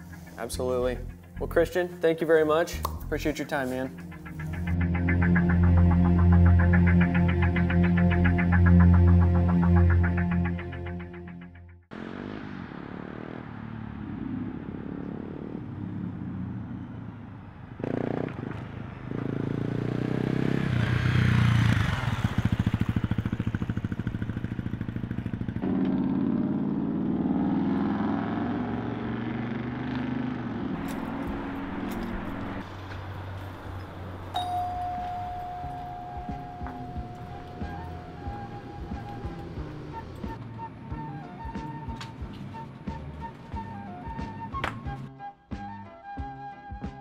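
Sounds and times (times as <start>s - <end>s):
dirt bike engine: 11.9s - 41.2s.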